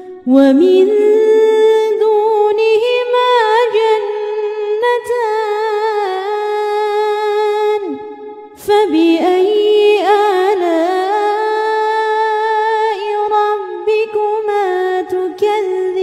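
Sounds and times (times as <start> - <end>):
person chanting recitation: 0.2 - 7.0.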